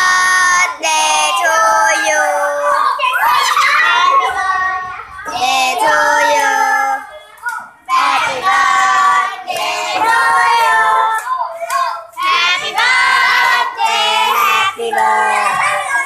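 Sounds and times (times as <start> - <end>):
girls singing together: 0.0 - 16.0
hands clapping: 10.6 - 12.3.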